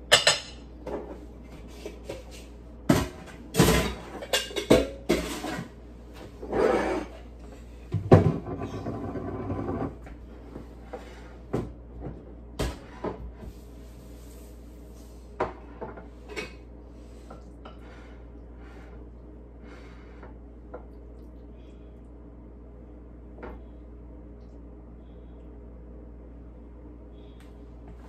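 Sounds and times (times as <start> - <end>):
rustling and shuffling: 10.1 - 17.3.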